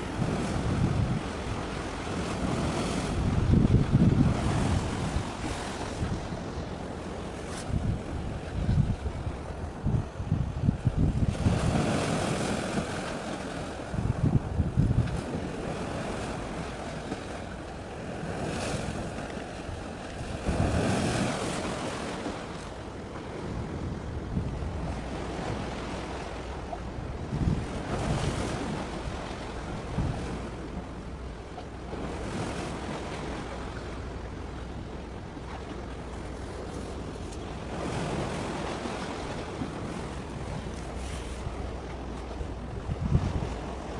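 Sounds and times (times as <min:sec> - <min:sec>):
sea waves: 0:00.0 - 0:43.9
wind buffeting the microphone: 0:00.0 - 0:43.9.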